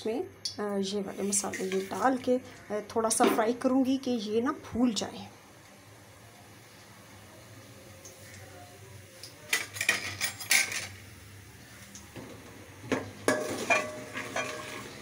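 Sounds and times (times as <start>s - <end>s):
metal spoon scraping pot: 13.3s - 15.0s.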